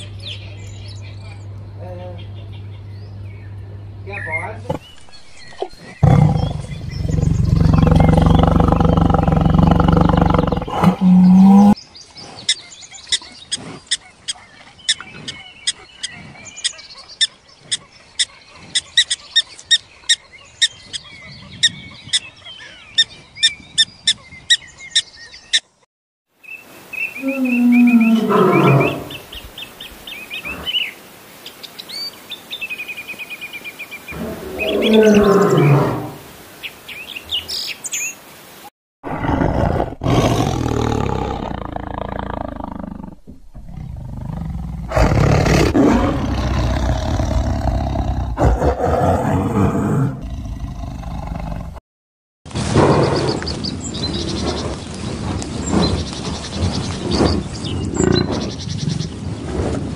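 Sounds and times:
crocodile low growl: 4.7 - 11.8, 27.2 - 29.2, 34.1 - 36.2, 39.0 - 51.8.

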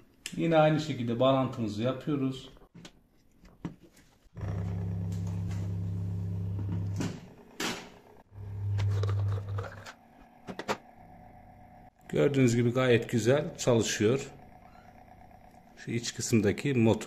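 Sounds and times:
pump motor humming: 4.4 - 17.0.

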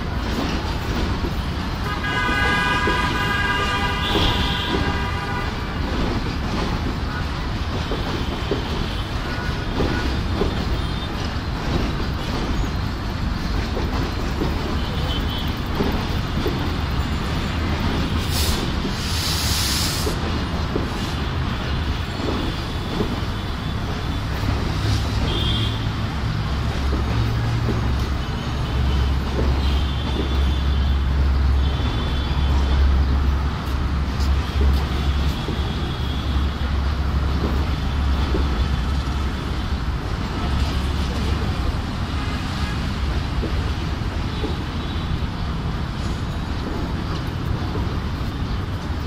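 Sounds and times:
train wheels clacking over rails: 0.0 - 49.0
train horn: 1.8 - 5.8, 25.2 - 25.9
short hiss: 18.2 - 20.2.

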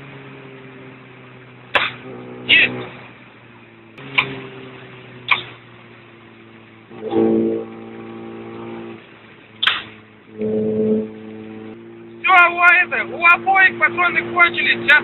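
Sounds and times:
engine drone: 0.0 - 15.0
steady pitched tone: 10.3 - 14.9.

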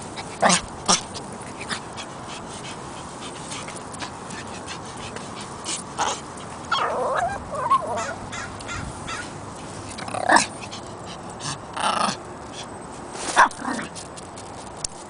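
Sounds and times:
dog whining: 6.0 - 8.4.

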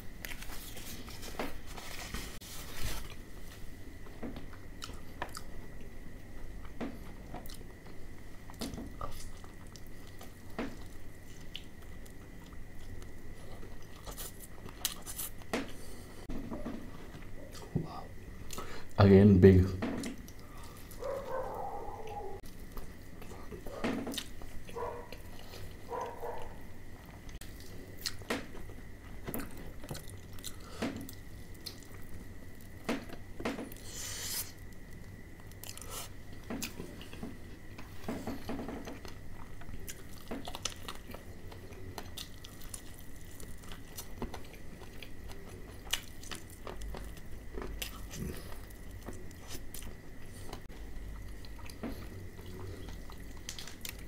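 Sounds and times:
crunchy chewing: 0.0 - 6.0, 6.6 - 16.1, 20.0 - 54.0
faint high hum: 0.0 - 54.0.

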